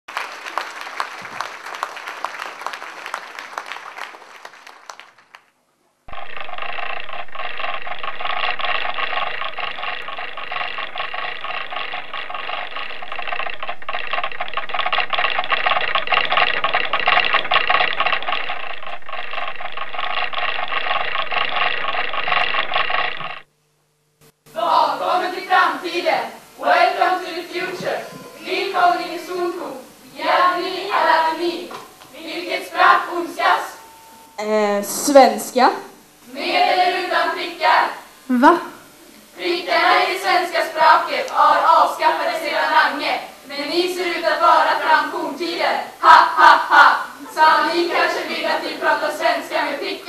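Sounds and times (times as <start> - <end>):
dense crackle: 2.1 - 24.4
whirring rattling machine effect: 6.1 - 23.5.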